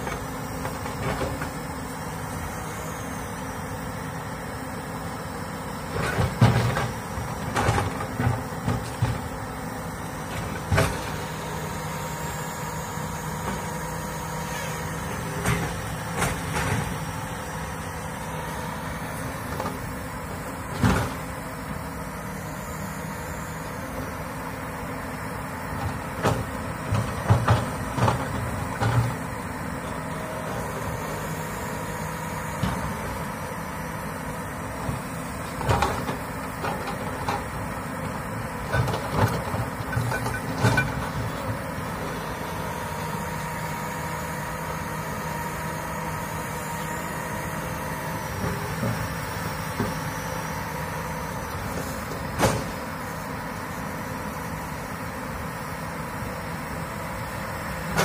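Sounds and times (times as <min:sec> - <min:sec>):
excavator diesel engine running: 0:00.0 - 0:58.0
machine clunks and knocks: 0:52.3 - 0:52.8.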